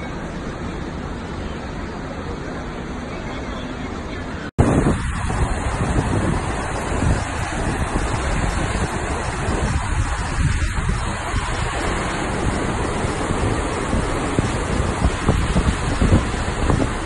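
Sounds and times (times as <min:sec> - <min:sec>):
wind buffeting microphone: 0:04.5 - 0:17.0
waterfall rushing: 0:04.6 - 0:17.0.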